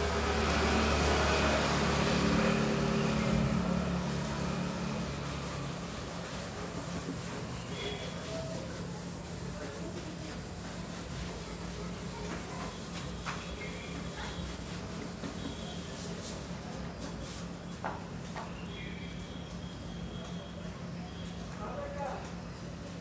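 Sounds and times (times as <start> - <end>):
cloth rubbing whiteboard: 1.9 - 17.5.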